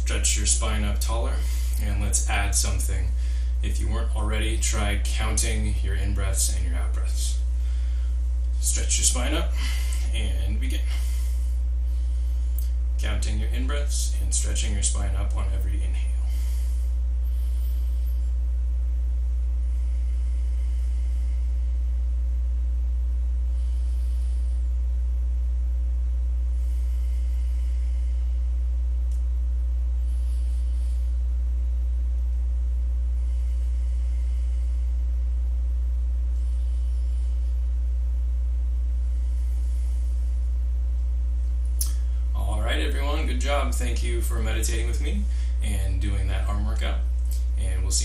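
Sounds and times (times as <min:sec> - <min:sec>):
faint slow breaths: 0:00.0 - 0:03.7, 0:04.6 - 0:48.0
steady low hum: 0:00.0 - 0:48.0.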